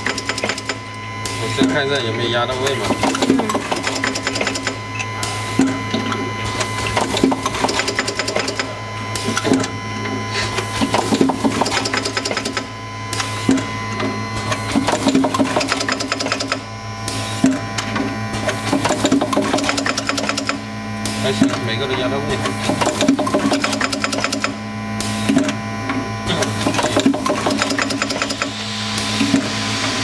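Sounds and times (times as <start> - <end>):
machine clattering and clacking: 0.0 - 0.8, 2.8 - 4.8, 6.6 - 8.8, 10.8 - 12.7, 14.5 - 16.6, 18.4 - 20.6, 22.4 - 24.6, 26.4 - 28.6.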